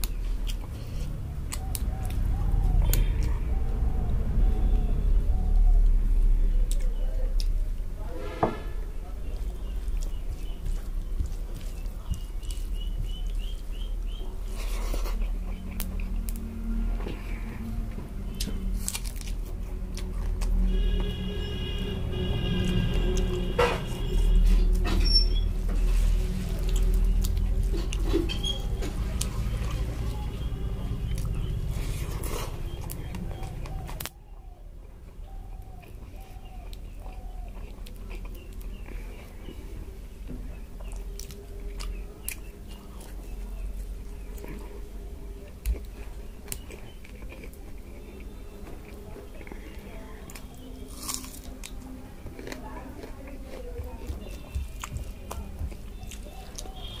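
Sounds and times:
fingers squishing rice: 0:40.5 - 0:57.0.

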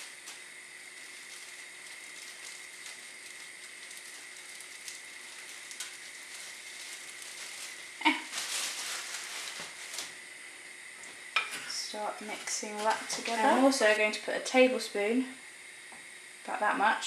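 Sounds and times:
crumbs poured from plastic bag: 0:00.0 - 0:10.2
butter sizzling in a saucepan: 0:00.0 - 0:17.0.

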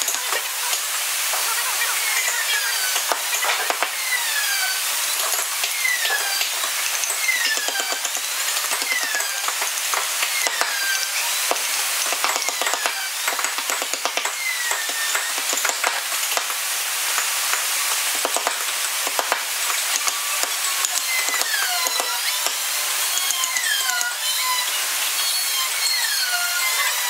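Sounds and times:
mallet tapping chisel: 0:02.2 - 0:04.0, 0:05.2 - 0:16.6, 0:17.2 - 0:24.2.

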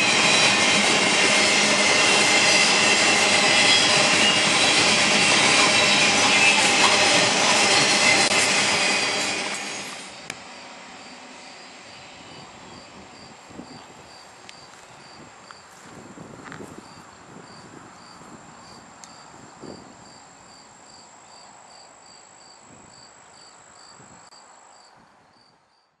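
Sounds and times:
train clanks: 0:00.0 - 0:11.3
freight train wheels rumbling: 0:00.0 - 0:20.0
insects chirping: 0:10.1 - 0:25.6.

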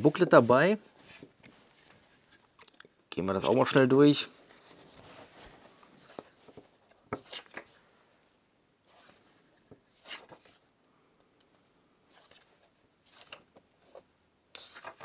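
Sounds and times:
paper pages rustling: 0:00.1 - 0:02.6, 0:03.4 - 0:07.8, 0:08.9 - 0:10.7, 0:12.1 - 0:15.0.

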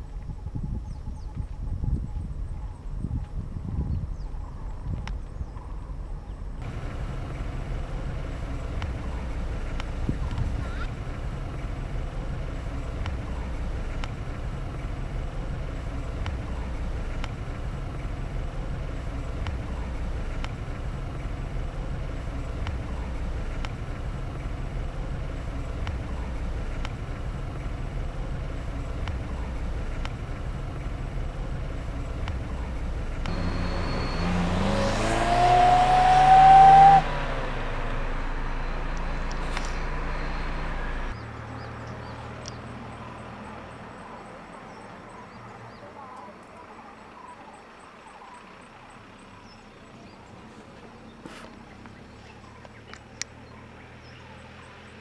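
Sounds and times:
low engine hum: 0:00.0 - 0:55.0
car driving past: 0:06.6 - 0:45.1.

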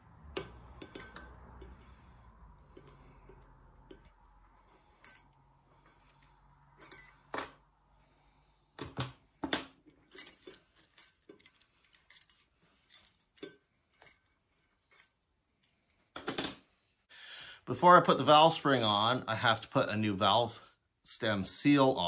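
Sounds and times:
small metal parts clinking: 0:00.4 - 0:02.0, 0:04.9 - 0:07.6, 0:09.9 - 0:16.6.

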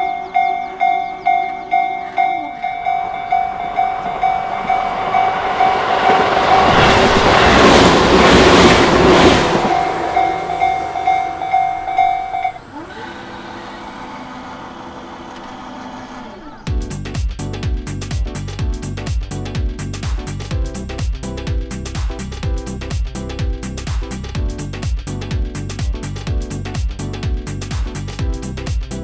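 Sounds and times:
level-crossing warning bell clanging: 0:00.0 - 0:16.3
electric train passing: 0:00.0 - 0:16.7.

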